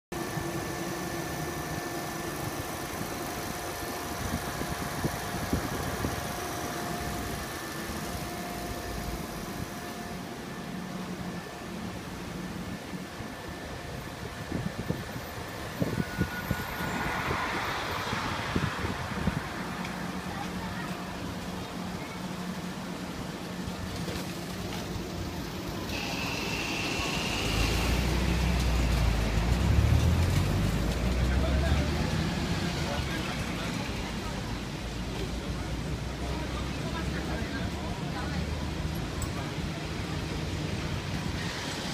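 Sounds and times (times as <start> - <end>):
street traffic: 0.1 - 41.9
faint high whine: 0.2 - 18.3, 20.2 - 29.1
fans whirring: 0.2 - 38.3
vehicle engine rumble: 0.2 - 41.9.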